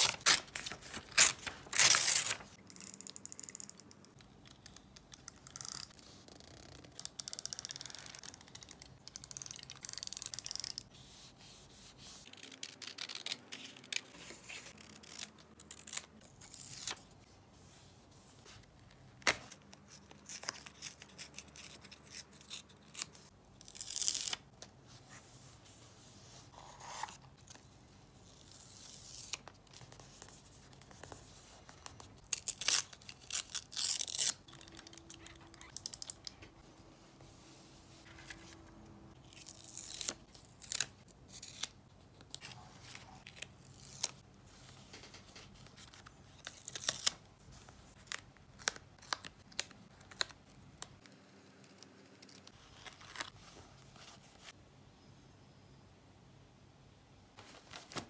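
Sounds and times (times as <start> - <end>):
paper tearing and rustling: 0.0 - 2.6.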